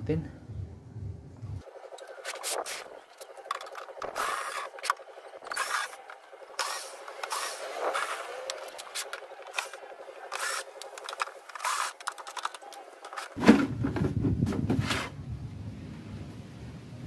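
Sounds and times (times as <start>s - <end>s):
plastic scraping and rubbing: 1.9s - 15.2s.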